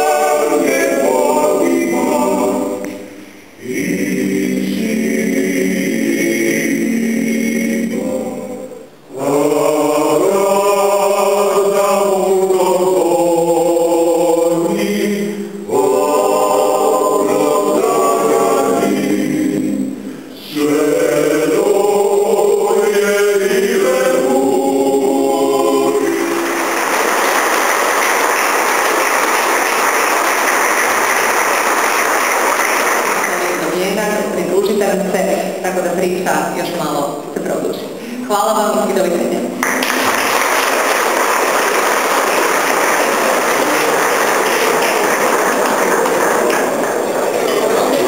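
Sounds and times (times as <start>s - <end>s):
choir singing: 0.0s - 36.0s, 39.6s - 48.0s
audience applauding: 26.0s - 33.9s, 39.6s - 48.0s.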